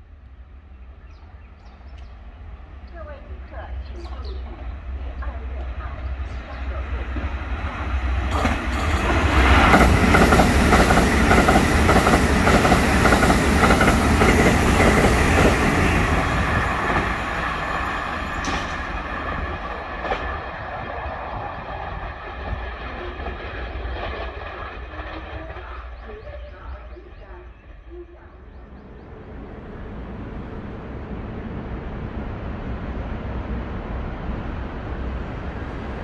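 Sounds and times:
train wheels clattering over rails: 0:05.2 - 0:26.3.

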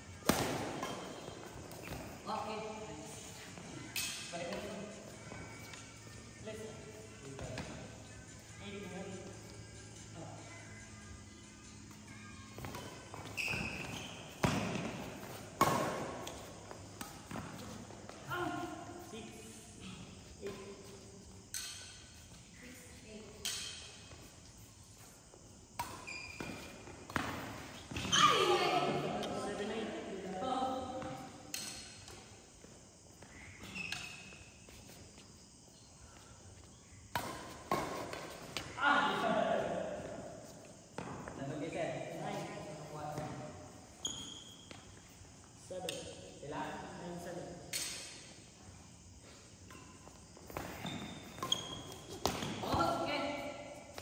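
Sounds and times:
sports hall background noise: 0:00.0 - 0:54.0
high-pitched squeak: 0:13.2 - 0:14.3.

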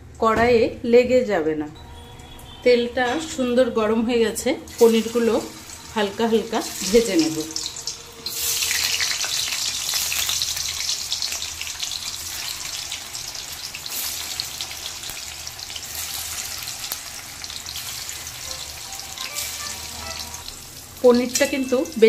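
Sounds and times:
paneer sizzling in hot oil: 0:04.7 - 0:22.0.

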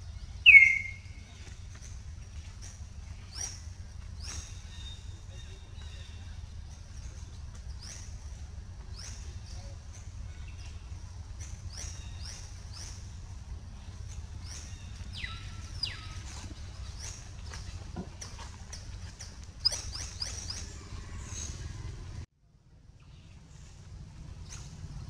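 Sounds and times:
high chirping animal calls: 0:00.0 - 0:01.5, 0:14.4 - 0:17.6
steady low rumble: 0:00.0 - 0:25.0.

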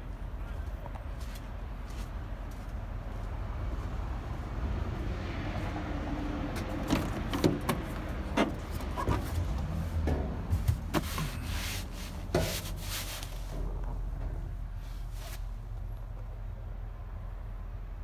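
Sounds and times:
knocks and clicks in truck cab: 0:06.6 - 0:11.4.

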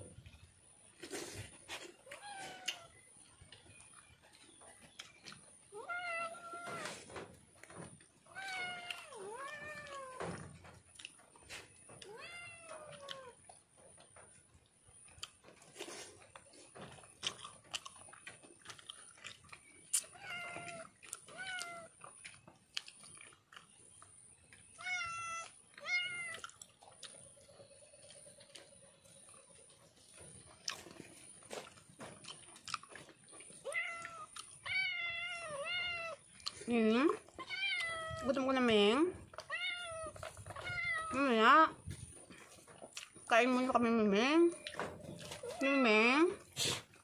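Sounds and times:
cat meowing: 0:02.0 - 0:02.9, 0:05.7 - 0:07.0, 0:08.3 - 0:10.4, 0:12.0 - 0:13.4, 0:20.1 - 0:21.9, 0:24.8 - 0:26.4, 0:33.6 - 0:36.2, 0:37.4 - 0:38.3, 0:39.4 - 0:41.2.

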